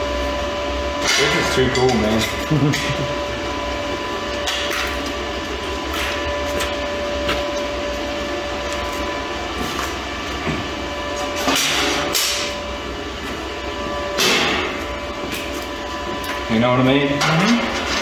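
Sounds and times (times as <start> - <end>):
high whine: 0.0 - 18.0
machine hum: 0.0 - 18.0
metal clanks and scrapes: 11.4 - 12.6.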